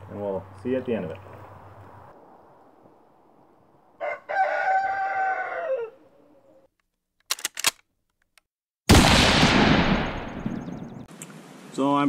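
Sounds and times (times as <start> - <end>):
rooster crowing: 3.9 - 6.7
quick clicks: 6.8 - 8.5.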